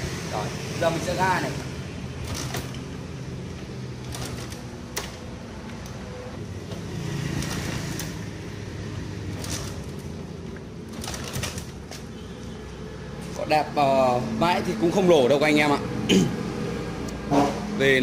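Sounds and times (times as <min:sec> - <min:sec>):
motorcycle engine kick-start cranking: 0:02.2 - 0:02.9, 0:09.3 - 0:10.1.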